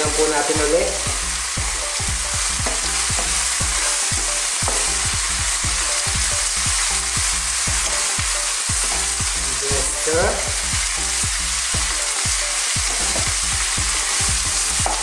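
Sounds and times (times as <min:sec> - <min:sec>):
food sizzling in a frying pan: 0:00.0 - 0:15.0
spatula knocking on pan: 0:01.1 - 0:09.4, 0:11.8 - 0:15.0.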